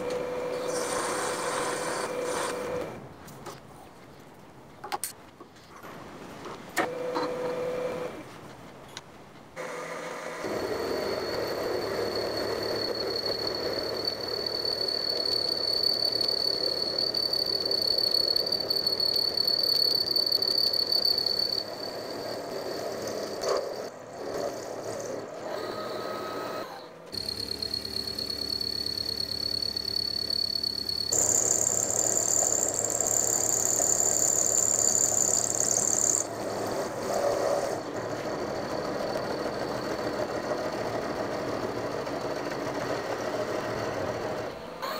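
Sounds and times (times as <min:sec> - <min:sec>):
high whistle: 0:10.5 - 0:23.4, 0:27.1 - 0:36.3
milling machine cutting metal: 0:25.5 - 0:37.9.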